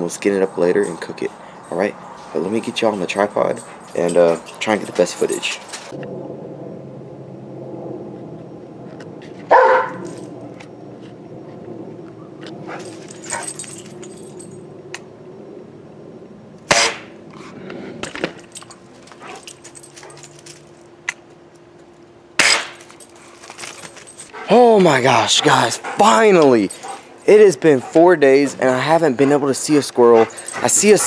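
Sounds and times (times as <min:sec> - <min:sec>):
steady low hum: 0:00.0 - 0:31.0
dog barking: 0:09.5 - 0:10.1.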